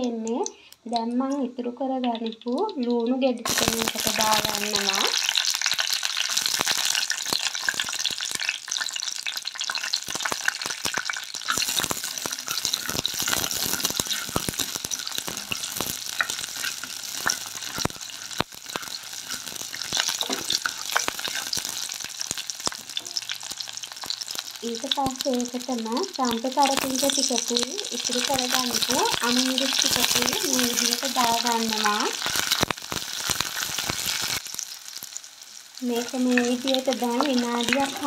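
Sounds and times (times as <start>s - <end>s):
food sizzling in hot oil: 2.0s - 38.0s
wooden spoon stirring: 11.4s - 21.8s.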